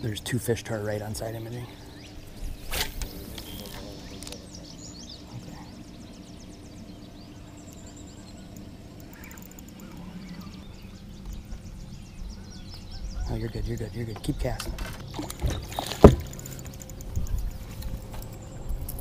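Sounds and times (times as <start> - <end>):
birds calling: 0.0 - 19.0
fishing reel winding: 9.0 - 10.0, 16.3 - 17.5.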